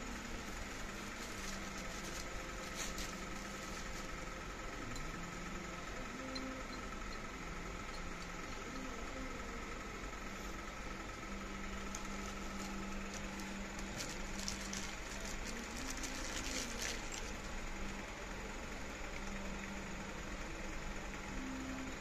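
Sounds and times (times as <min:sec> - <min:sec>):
room hum with high tone: 0:00.0 - 0:22.0
plastic wrap rustling: 0:00.5 - 0:04.1, 0:11.9 - 0:17.4.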